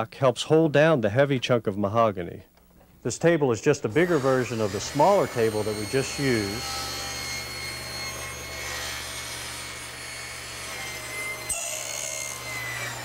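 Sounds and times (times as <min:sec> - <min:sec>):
table saw motor humming: 0:03.8 - 0:13.0
saw blade grinding through wood: 0:03.9 - 0:13.0.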